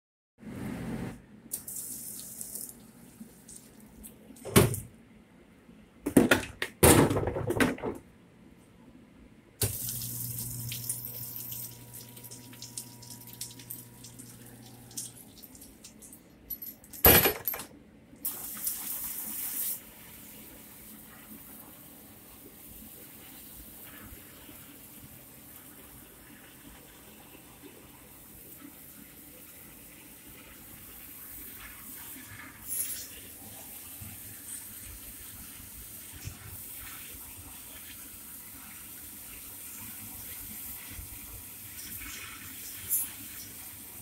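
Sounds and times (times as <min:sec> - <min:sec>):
loud knocks and clatters: 0:06.1 - 0:08.0
water splashing in dishwasher: 0:09.6 - 0:16.2.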